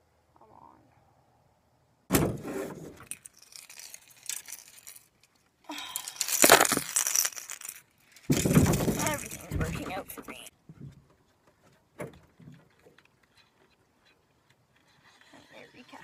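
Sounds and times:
fishing gear clinking and rattling: 3.0 - 10.5.

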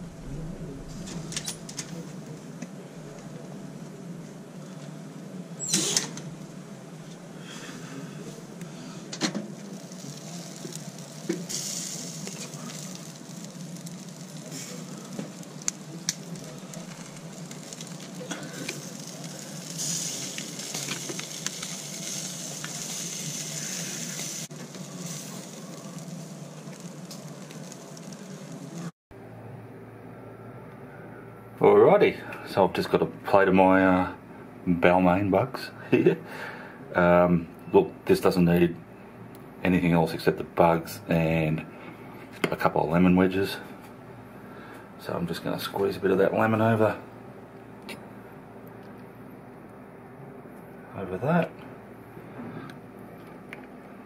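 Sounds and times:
seafood sizzling on grill: 7.3 - 28.9.

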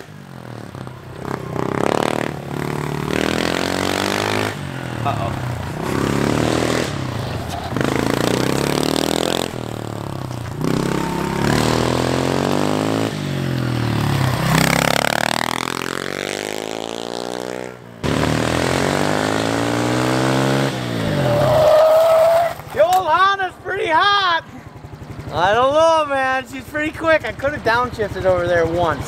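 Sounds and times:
motorbike engine revving: 0.0 - 22.8.

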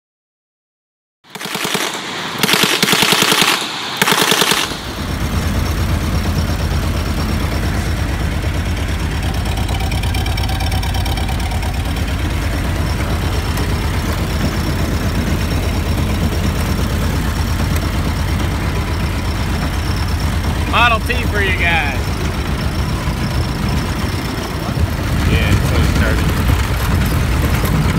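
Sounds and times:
machine gun bursts: 1.3 - 5.3
engine idling: 1.4 - 27.9.

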